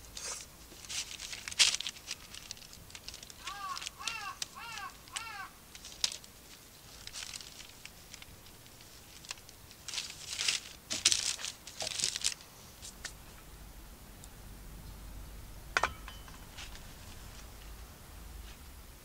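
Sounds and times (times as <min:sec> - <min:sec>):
bread crust crackling: 0:00.1 - 0:13.1.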